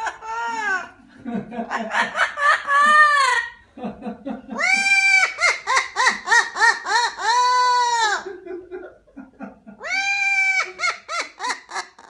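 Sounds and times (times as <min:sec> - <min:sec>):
parrot mimicking laughter: 0:00.0 - 0:01.0, 0:01.7 - 0:03.6, 0:04.5 - 0:08.4, 0:09.8 - 0:12.0.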